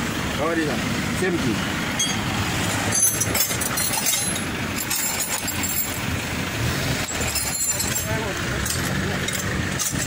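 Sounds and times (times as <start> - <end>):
heavy vehicle engine rumbling: 0.0 - 10.0
faint clinks: 2.9 - 6.0, 7.0 - 10.0.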